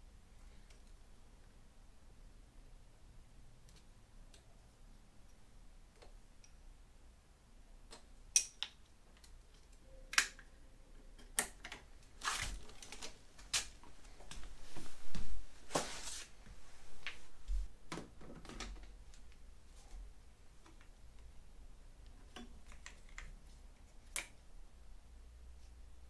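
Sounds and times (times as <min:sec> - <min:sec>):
rustling: 0:12.1 - 0:17.8.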